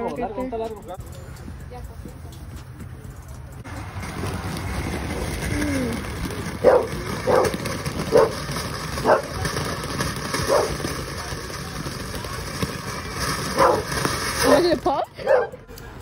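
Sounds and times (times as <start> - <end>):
firework hissing: 3.7 - 15.2
dog barking: 6.6 - 8.4, 9.0 - 9.3, 10.5 - 10.8, 13.6 - 13.8, 15.2 - 15.6.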